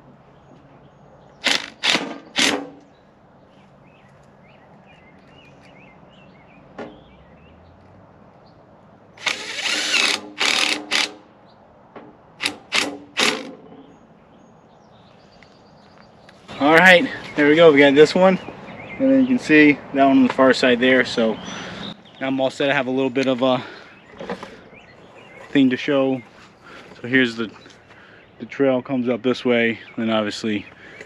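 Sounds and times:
cordless drill driving screws: 0:01.4 - 0:02.7, 0:09.2 - 0:11.2, 0:12.4 - 0:13.5.

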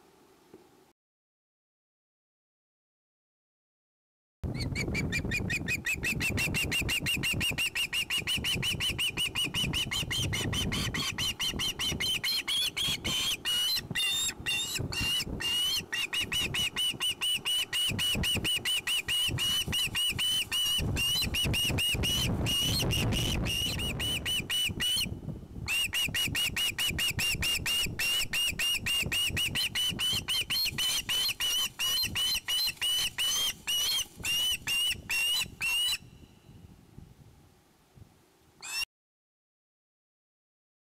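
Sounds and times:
young osprey squealing: 0:04.5 - 0:25.1, 0:25.7 - 0:36.1, 0:38.6 - 0:38.9.

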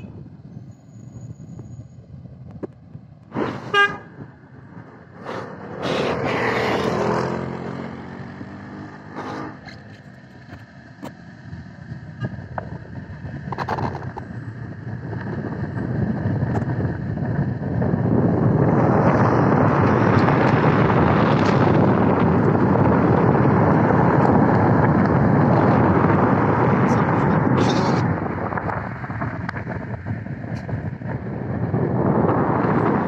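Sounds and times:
rumble of traffic: 0:00.0 - 0:33.0
car horn toot: 0:03.7 - 0:04.2
vehicle passing close: 0:04.7 - 0:10.1.

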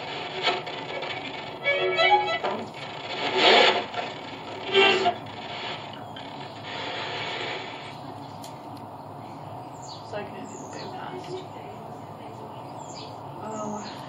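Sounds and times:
radio static hiss: 0:00.0 - 0:08.6
noise bursts: 0:00.0 - 0:11.0.

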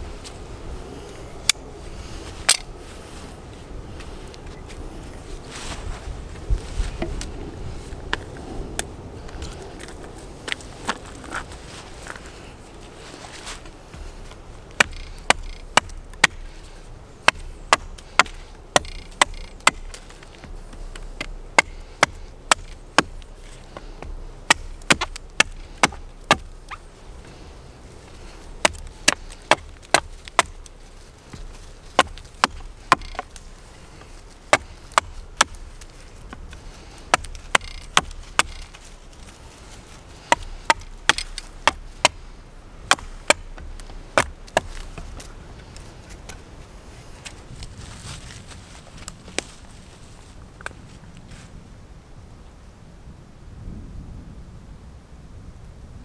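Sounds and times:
axe chopping wood: 0:13.9 - 0:26.8, 0:28.6 - 0:33.4, 0:34.0 - 0:38.8, 0:40.2 - 0:45.3.

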